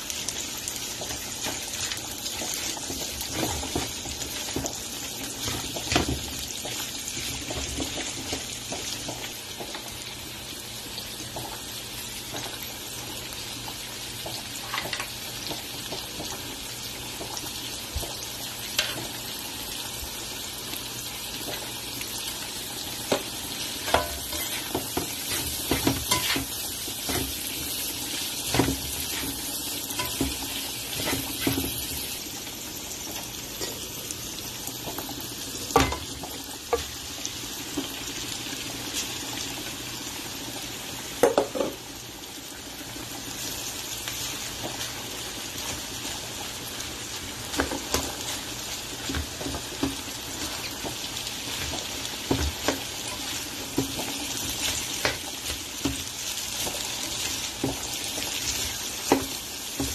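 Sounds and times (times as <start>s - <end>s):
meat and vegetables sizzling in oil: 0.0s - 59.9s
spatula and fork scraping a pan: 23.8s - 27.8s, 28.4s - 32.0s.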